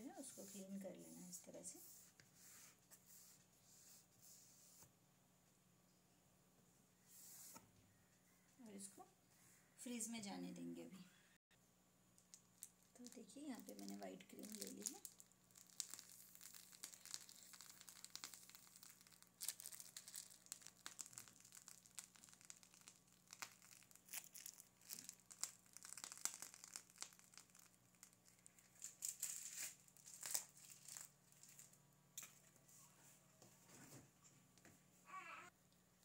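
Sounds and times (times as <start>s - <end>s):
plastic piping bag crinkling: 12.2s - 31.8s.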